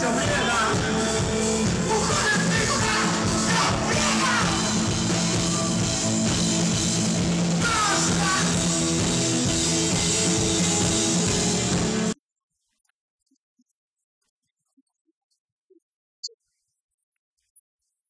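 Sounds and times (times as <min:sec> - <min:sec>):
punk rock band playing live: 0:00.0 - 0:12.2.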